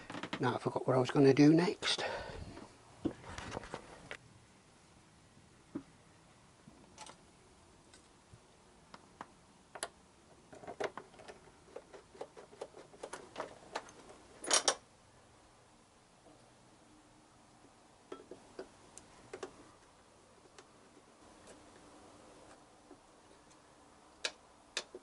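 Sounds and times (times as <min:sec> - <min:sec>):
tools clicking and tapping: 0:18.1 - 0:19.6, 0:24.2 - 0:25.0.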